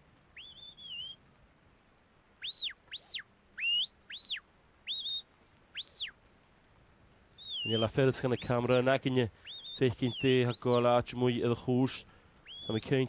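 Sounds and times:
short rising and falling whistles: 0.4s - 1.2s, 2.4s - 5.2s, 5.8s - 6.1s, 7.4s - 8.8s, 9.4s - 10.7s.

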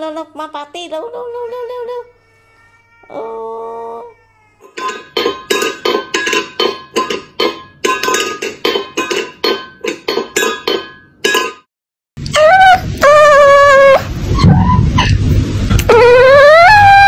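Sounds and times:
metal food bowl clinking: 4.6s - 11.7s.

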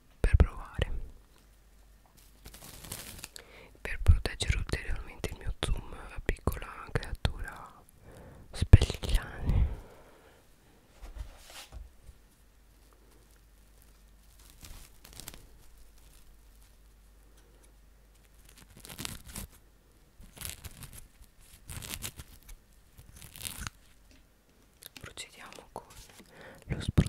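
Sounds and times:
cling film ripping and crinkling: 2.2s - 3.4s, 12.9s - 19.6s, 20.2s - 24.0s.

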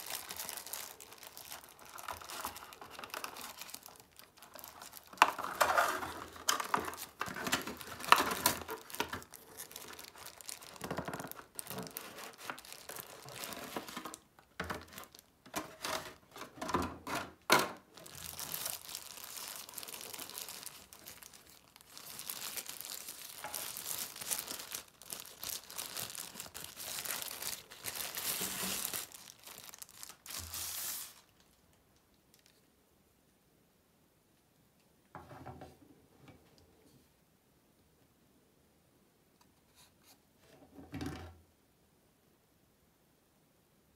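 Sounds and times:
plastic wrap rustling: 0.0s - 31.7s, 32.3s - 32.6s.

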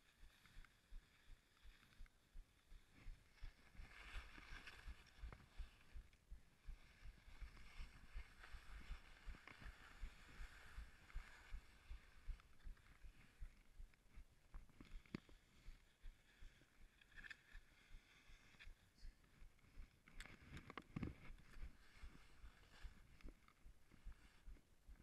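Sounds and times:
skis scraping over snow: 3.1s - 5.9s.

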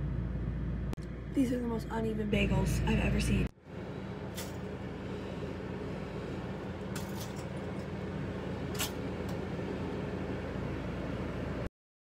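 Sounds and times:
steady low hum: 0.0s - 11.7s.

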